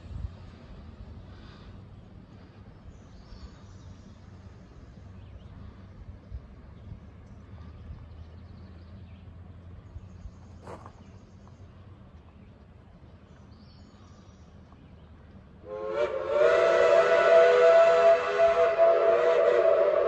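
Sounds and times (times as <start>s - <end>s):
faint low rumble: 0.0s - 15.7s
steam locomotive whistle chord: 15.6s - 20.0s.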